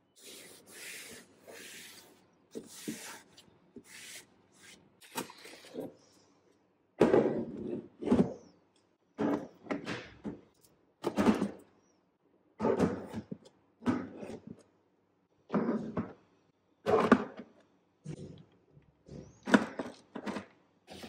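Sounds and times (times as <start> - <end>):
plastic organizers knocking and scraping: 7.0 - 8.6, 9.2 - 11.7, 12.6 - 14.6, 15.5 - 16.2, 16.8 - 18.4, 19.0 - 21.0.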